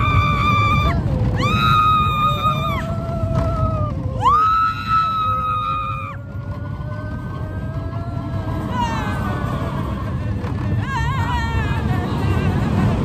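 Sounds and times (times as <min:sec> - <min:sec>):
riders screaming: 0:00.0 - 0:06.2
low rumble of moving train: 0:00.0 - 0:13.0.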